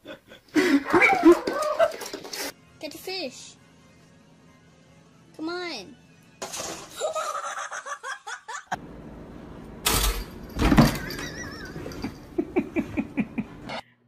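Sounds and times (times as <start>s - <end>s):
laughter: 6.9s - 8.8s, 11.0s - 13.8s.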